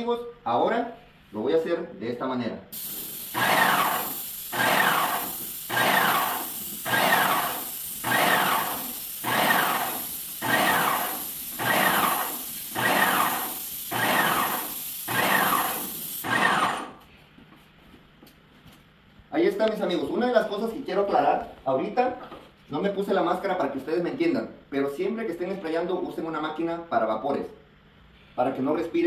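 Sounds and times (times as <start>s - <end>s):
paint sprayer hissing: 2.8s - 17.1s.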